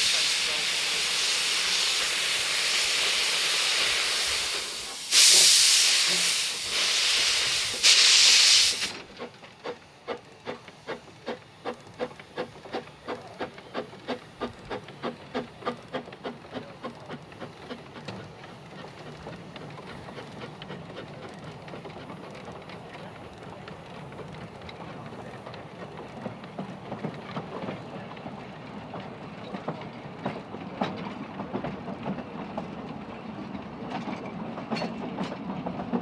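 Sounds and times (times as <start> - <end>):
loud steam blasts: 0.0 - 9.0
steam hissing from drain cocks: 0.0 - 9.8
steam locomotive chuffing: 0.0 - 36.0.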